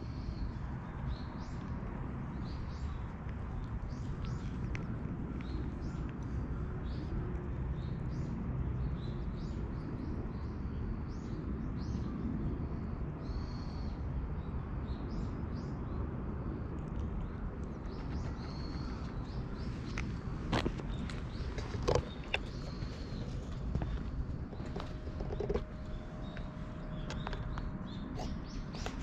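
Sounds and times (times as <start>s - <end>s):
small birds calling: 17.2s - 29.0s.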